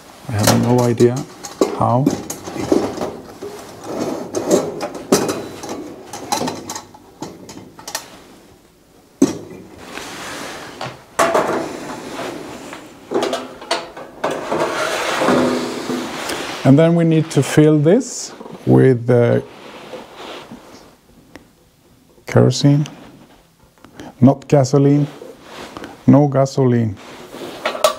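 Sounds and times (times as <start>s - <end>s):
metal parts clicking and scraping: 0.4s - 8.1s.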